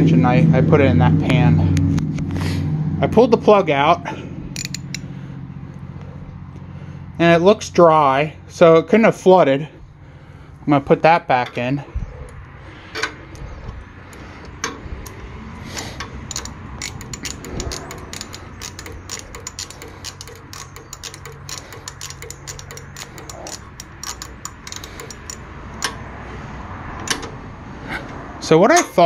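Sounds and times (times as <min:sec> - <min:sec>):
socket ratchet clicking: 0:04.6 - 0:05.0, 0:15.8 - 0:26.0.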